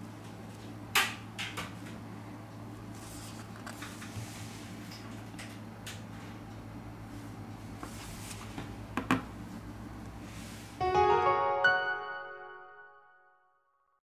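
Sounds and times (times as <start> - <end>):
steady low hum: 0.0 - 10.9.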